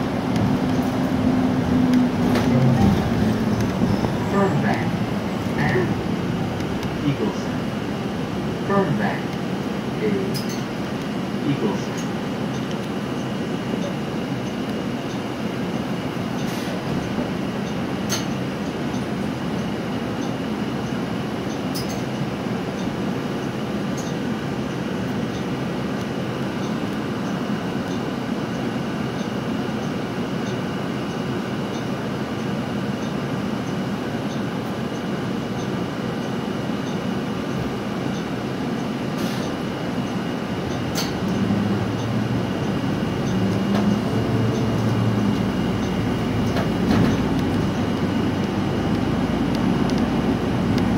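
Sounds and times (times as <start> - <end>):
bus engine and road rumble: 0.0 - 50.9
clicks from bus body: 40.7 - 41.4.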